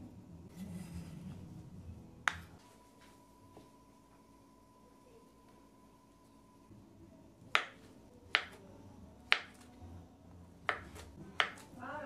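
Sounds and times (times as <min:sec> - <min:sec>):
knife slicing banana: 0:10.6 - 0:11.7.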